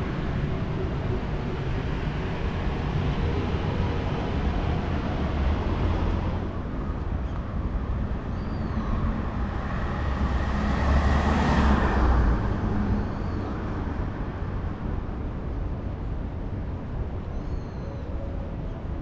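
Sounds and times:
street traffic rumble: 0:00.0 - 0:19.0
vehicle passing by: 0:08.8 - 0:13.4.

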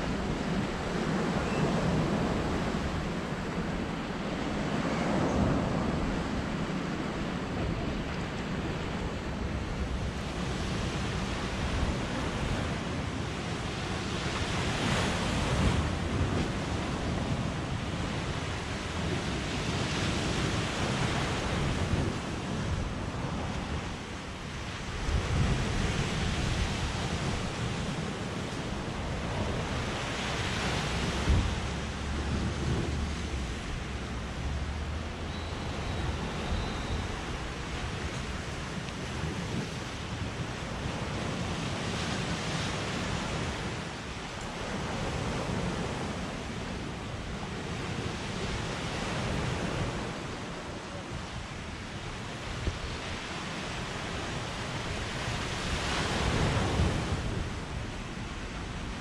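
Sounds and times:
surf breaking on sandy shore: 0:00.0 - 0:59.0
wind rumbling on microphone: 0:00.0 - 0:59.0.

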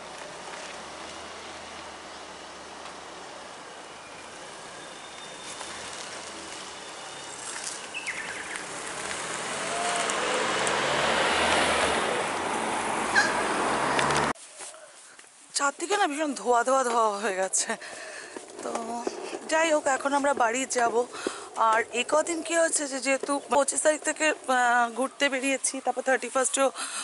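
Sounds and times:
car driving past: 0:03.8 - 0:14.4.

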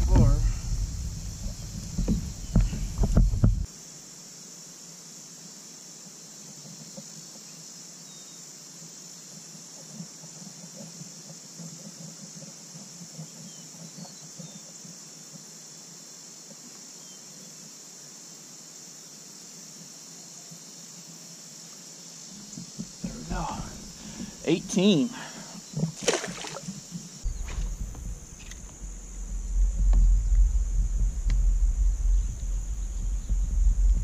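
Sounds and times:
crickets chirping: 0:00.0 - 0:34.0
handling knocks and rustles: 0:25.8 - 0:28.8.

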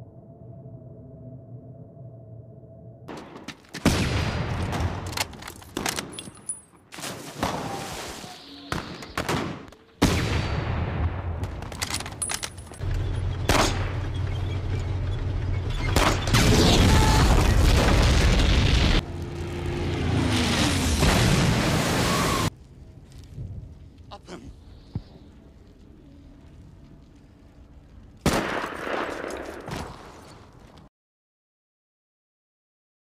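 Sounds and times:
rumble of gunfire and explosions: 0:00.0 - 0:30.9
rifle and machine-gun shots: 0:13.5 - 0:14.0, 0:28.2 - 0:29.7.

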